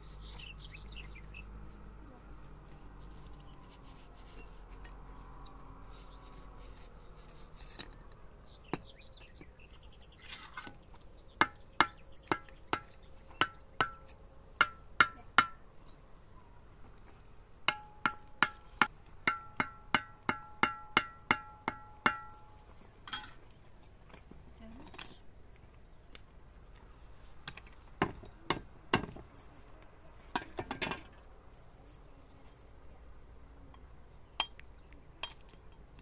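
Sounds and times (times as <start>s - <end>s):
sharp ringing knocks: 11.4s - 15.6s, 17.7s - 23.3s.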